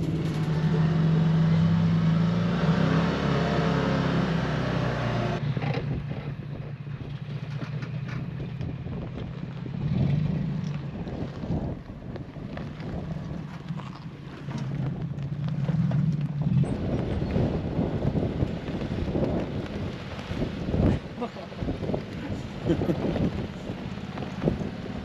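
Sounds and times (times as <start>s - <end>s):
vehicle engine running: 0.0s - 25.0s
wind noise on microphone: 5.4s - 25.0s.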